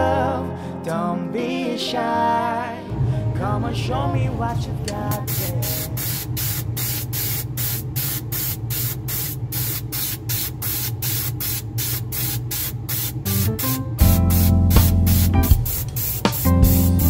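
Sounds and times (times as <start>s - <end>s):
background music: 0.0s - 6.0s, 13.3s - 17.0s
airbrush spraying paint: 5.1s - 17.0s.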